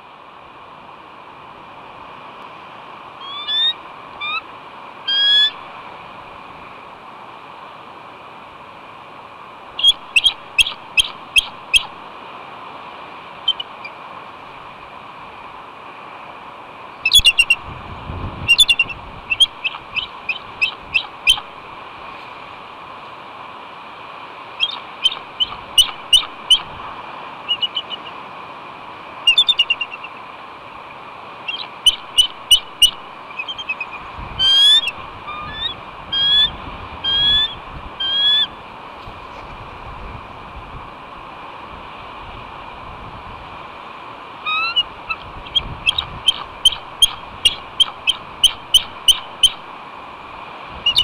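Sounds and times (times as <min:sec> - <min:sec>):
eagle calling: 0:03.2 - 0:04.5, 0:05.1 - 0:05.7, 0:09.8 - 0:12.0, 0:13.4 - 0:14.0, 0:17.0 - 0:17.7, 0:18.4 - 0:21.6, 0:24.6 - 0:26.8, 0:27.4 - 0:28.2, 0:29.3 - 0:30.2, 0:31.4 - 0:38.6, 0:44.4 - 0:49.6.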